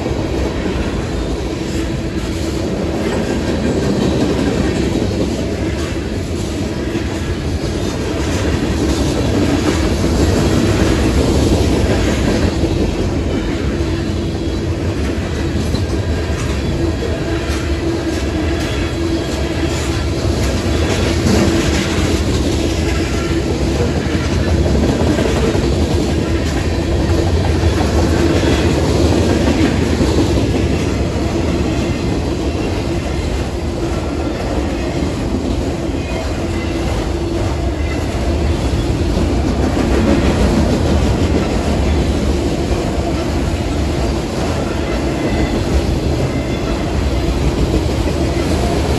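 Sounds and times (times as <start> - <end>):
freight train rumbling past: 0.0 - 48.9.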